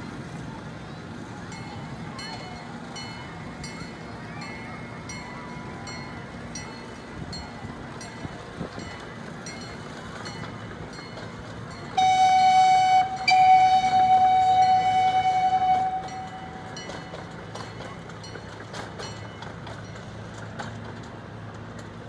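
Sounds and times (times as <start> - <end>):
faint train running: 0.0 - 22.0
train horn blasts: 12.0 - 16.8.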